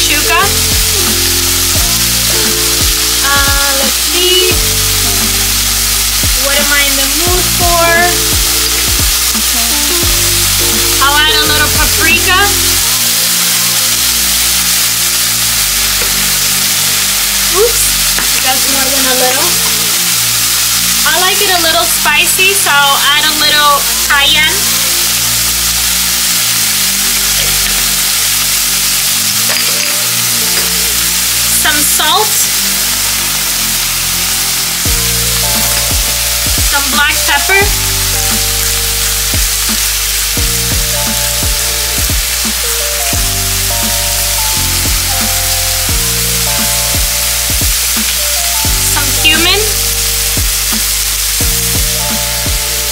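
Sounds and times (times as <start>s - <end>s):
music with deep bass beat: 0.0s - 13.4s, 32.7s - 52.9s
vegetables sizzling in skillet: 0.0s - 52.9s.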